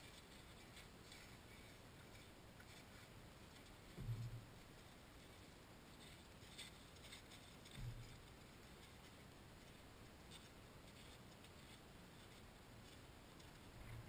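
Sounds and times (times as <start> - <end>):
faint light ticks: 0.0 - 14.0
soft low bump: 3.8 - 4.7.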